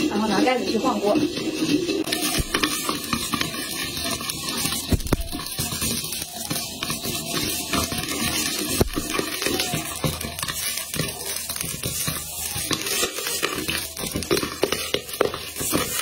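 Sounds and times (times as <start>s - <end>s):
popcorn popping: 0.0s - 16.0s
glass lid rattling on pan: 0.2s - 6.0s.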